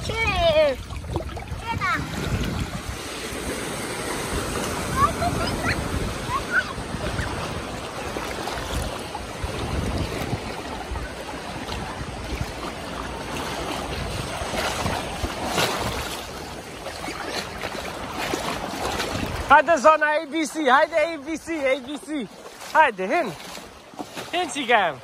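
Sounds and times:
wind buffeting microphone: 0:00.0 - 0:19.9
sea water lapping: 0:00.0 - 0:25.0
water splashes: 0:00.0 - 0:25.0.

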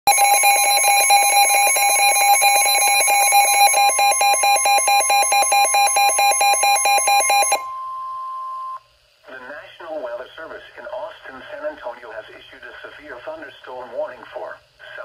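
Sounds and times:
fast pulsing alarm beep: 0:00.1 - 0:07.9.

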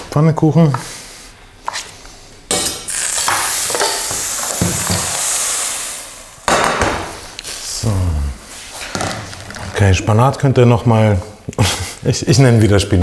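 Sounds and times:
batter sizzling in frying pan: 0:02.8 - 0:06.5.

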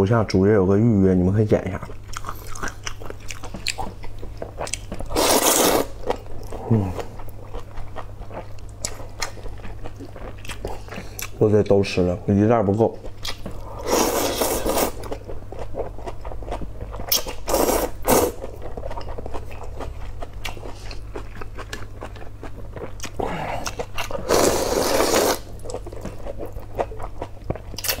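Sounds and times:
low steady hum: 0:00.0 - 0:28.0
wet chewing: 0:01.8 - 0:11.4, 0:13.0 - 0:28.0
noodle soup slurping: 0:05.1 - 0:06.0, 0:13.8 - 0:15.0, 0:17.1 - 0:18.4, 0:24.1 - 0:25.5.

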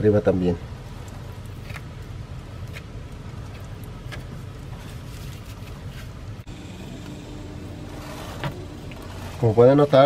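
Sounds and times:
low background rumble: 0:00.5 - 0:10.0.

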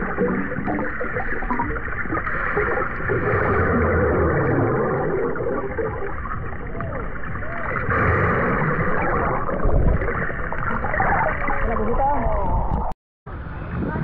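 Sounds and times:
muffled voice-like glides: 0:00.0 - 0:01.8
water sloshing and splashing: 0:00.0 - 0:12.9.

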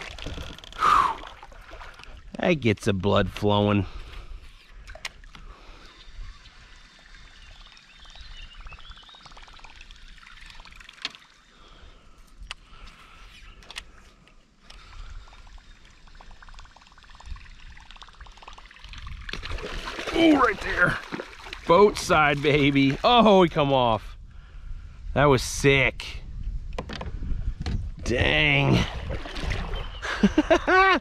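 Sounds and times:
water gurgling and trickling: 0:00.0 - 0:02.5, 0:04.3 - 0:12.0, 0:14.8 - 0:23.4, 0:28.0 - 0:30.6
fish splash: 0:17.8 - 0:21.7.

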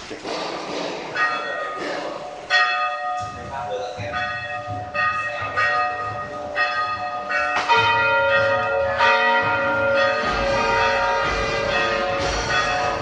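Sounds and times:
church bells tolling: 0:01.1 - 0:13.0.

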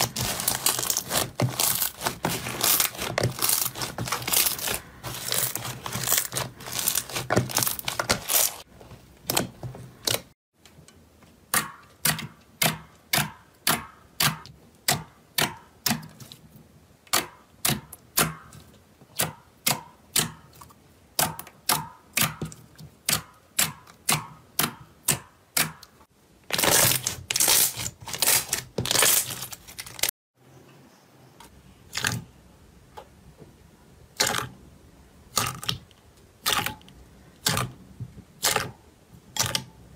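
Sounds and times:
dense crackling of slime: 0:00.0 - 0:08.7, 0:26.4 - 0:30.1.

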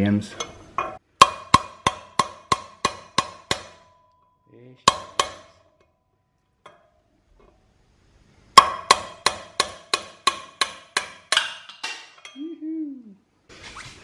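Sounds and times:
hammer striking steel drift: 0:00.4 - 0:05.9, 0:08.5 - 0:12.4.

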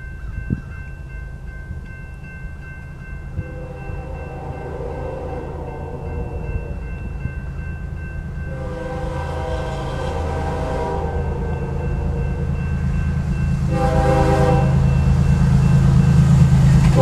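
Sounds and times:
crossing warning bell ringing: 0:00.0 - 0:17.0
low rumble of diesel locomotives: 0:00.0 - 0:17.0
locomotive air horn: 0:03.4 - 0:06.9, 0:08.5 - 0:12.6, 0:13.7 - 0:14.9.

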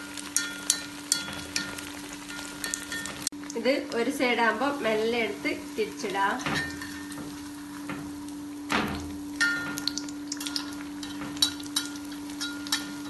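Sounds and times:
oil crackling and popping: 0:00.0 - 0:04.1, 0:06.0 - 0:13.0
skimmer clinking against pan: 0:00.3 - 0:03.3, 0:06.4 - 0:07.4, 0:09.4 - 0:13.0.

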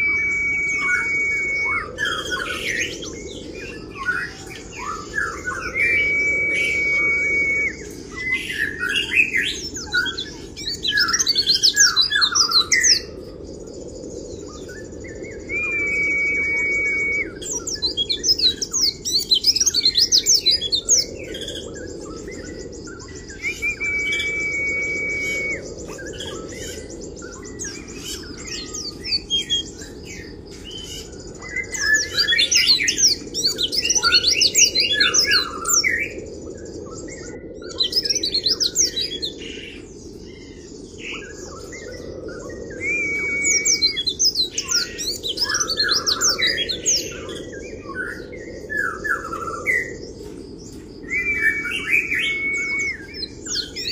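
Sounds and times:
bird whistle-like notes: 0:00.0 - 0:02.8, 0:05.3 - 0:09.4, 0:15.5 - 0:17.8, 0:23.3 - 0:26.4, 0:42.8 - 0:44.0, 0:51.1 - 0:53.2
bird twittering chirps: 0:00.0 - 0:53.9.

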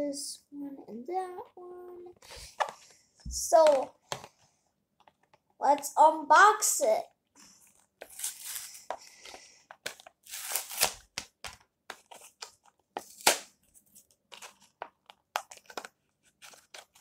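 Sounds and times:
packaging ripping and crackling: 0:09.8 - 0:11.3
blister packaging being torn open: 0:09.8 - 0:13.6.

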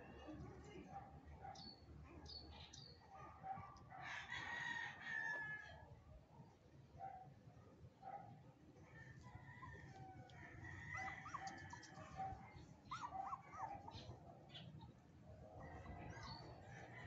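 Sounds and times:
faint outdoor background: 0:00.0 - 0:17.0
rooster crowing: 0:04.0 - 0:05.8, 0:09.2 - 0:12.1.

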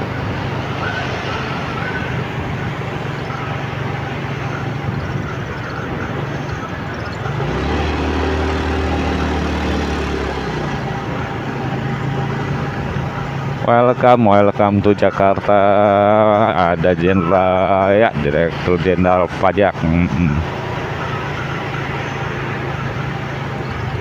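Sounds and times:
motorcycle engine running: 0:00.0 - 0:14.0, 0:20.4 - 0:24.0
road and wind rushing: 0:00.0 - 0:24.0.

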